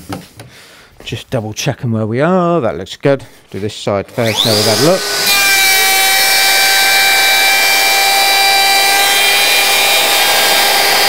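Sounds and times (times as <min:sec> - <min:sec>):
router bit cutting wood: 0:04.1 - 0:11.0
router motor whining: 0:04.1 - 0:11.0.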